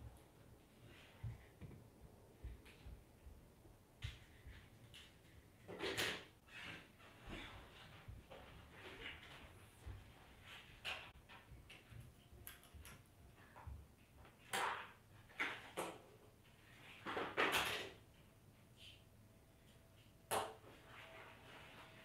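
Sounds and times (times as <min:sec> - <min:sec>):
rustling scrapes: 0:20.7 - 0:22.0.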